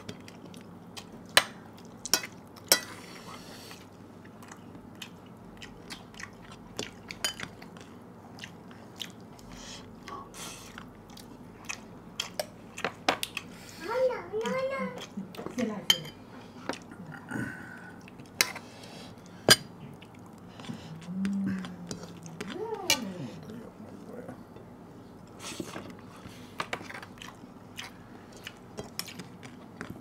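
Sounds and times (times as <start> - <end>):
chewing with wet mouth clicks: 0.0 - 2.7, 4.2 - 13.5, 18.0 - 18.4, 19.2 - 23.5, 26.7 - 30.0.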